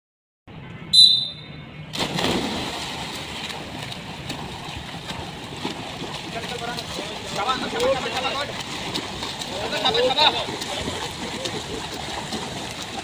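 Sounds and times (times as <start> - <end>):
shrill whistle blast: 0.9 - 1.6
water splashing and churning: 1.8 - 13.0
swimmers diving in: 1.9 - 13.0.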